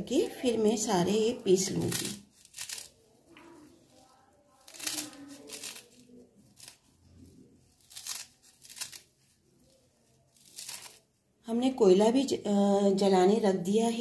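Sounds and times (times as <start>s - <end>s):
knife cutting leafy stems: 1.8s - 2.9s, 4.6s - 6.8s.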